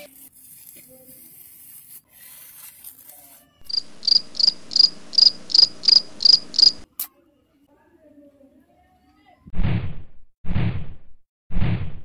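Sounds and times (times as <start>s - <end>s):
cricket chirping: 3.6s - 6.8s.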